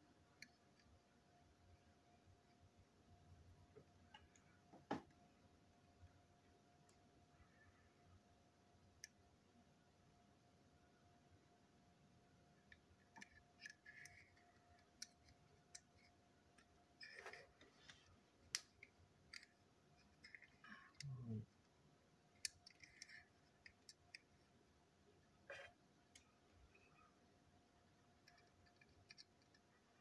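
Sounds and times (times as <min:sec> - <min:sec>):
plastic toy parts clicking: 0:12.6 - 0:17.4, 0:18.4 - 0:21.2, 0:22.3 - 0:24.4, 0:28.1 - 0:30.0.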